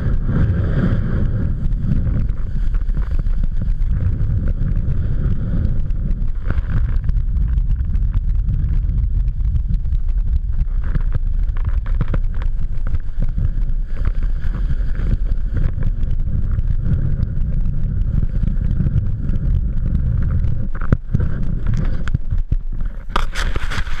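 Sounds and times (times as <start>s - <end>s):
skis sliding over snow: 0.0s - 24.0s
wind buffeting microphone: 0.0s - 24.0s
camera knocking: 5.8s - 16.8s.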